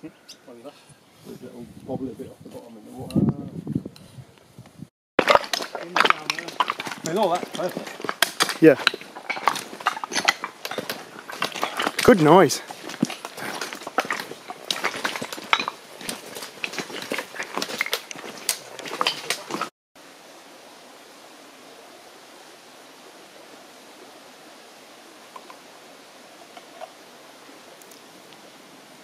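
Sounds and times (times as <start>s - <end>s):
faint outdoor hiss: 0.0s - 29.0s
footsteps crunching on stony path: 5.2s - 19.7s
trekking poles clicking on rocks: 5.2s - 19.7s.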